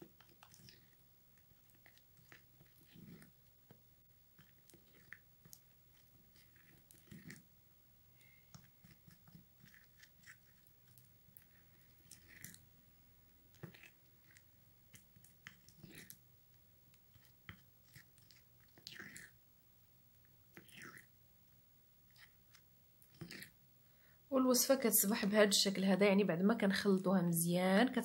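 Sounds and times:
spoon stirring thick paste: 0.0 - 19.4, 22.1 - 23.6.

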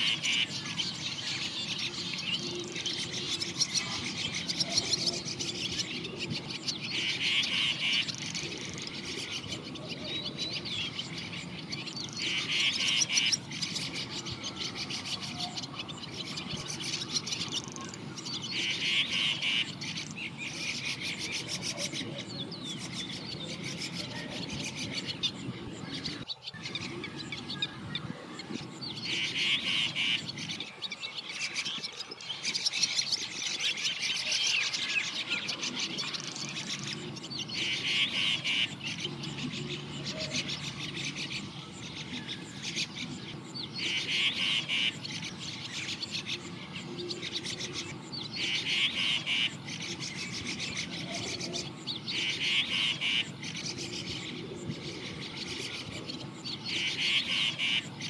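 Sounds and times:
small birds chirping: 0.0 - 58.0
rapidly pulsed bird call: 28.9 - 58.0.

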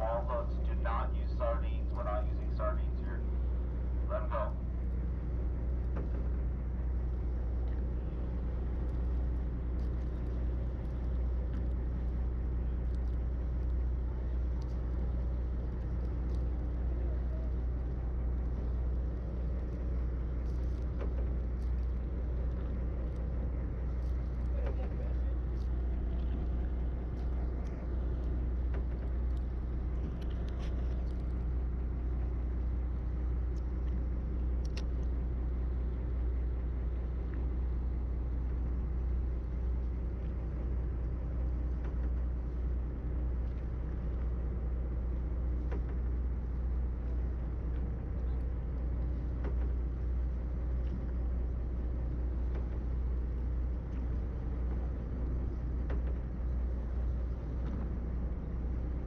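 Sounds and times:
boat engine low drone: 0.0 - 59.0
faint clicks: 18.4 - 31.5, 34.6 - 35.2.

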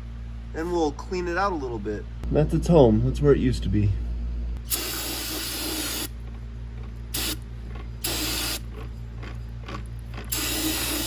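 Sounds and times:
aerosol spray hissing: 4.7 - 6.1, 8.0 - 8.6, 10.3 - 11.0.

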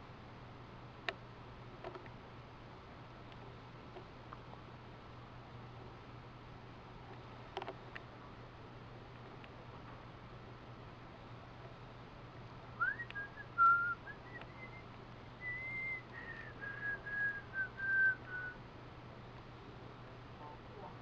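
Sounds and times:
faint low hum: 0.0 - 21.0
person whistling a tune: 12.8 - 14.8, 15.4 - 18.6.

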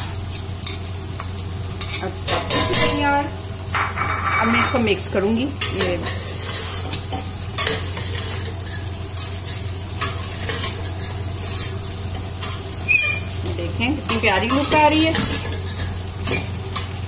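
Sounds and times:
ghee sizzling: 0.0 - 17.0
metal spoon scraping pot: 12.4 - 13.3.

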